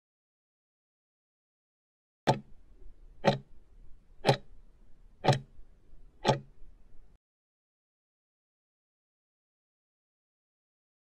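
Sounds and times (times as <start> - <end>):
clock ticking: 2.3 - 2.6, 3.2 - 3.5, 4.2 - 4.5, 5.2 - 5.6, 6.2 - 6.6.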